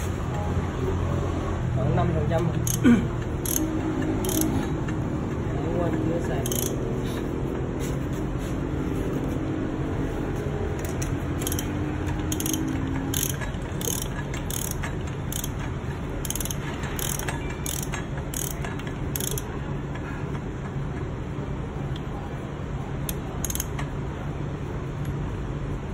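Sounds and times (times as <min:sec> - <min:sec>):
socket ratchet clicking: 0:02.4 - 0:05.0, 0:06.4 - 0:06.9, 0:10.8 - 0:19.6, 0:23.1 - 0:23.9.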